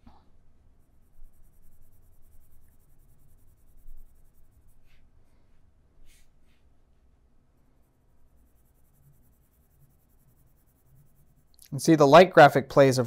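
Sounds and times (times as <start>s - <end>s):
low room hum: 0.0s - 13.0s
pen scratching on paper: 0.9s - 5.0s, 7.8s - 11.6s.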